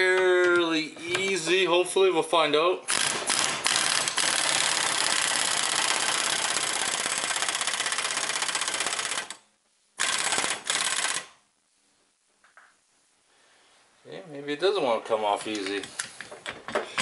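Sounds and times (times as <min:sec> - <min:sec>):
impact wrench hammering: 0:02.9 - 0:09.1.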